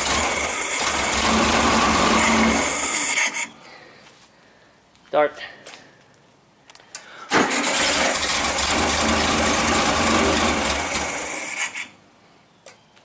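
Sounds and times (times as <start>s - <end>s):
starter motor cranking engine: 0.0s - 3.5s, 7.3s - 11.9s.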